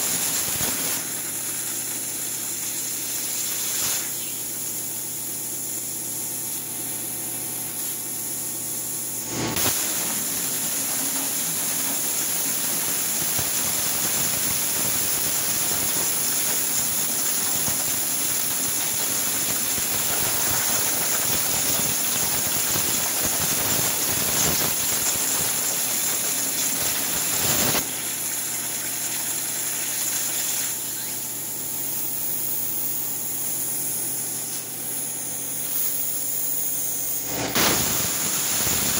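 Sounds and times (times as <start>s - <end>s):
plasma arc firing crack: 0.0s - 4.4s, 9.2s - 27.9s, 31.9s - 38.9s
plasma torch hissing: 0.0s - 28.2s, 29.5s - 38.9s
plasma cutting loud hiss: 0.0s - 38.9s.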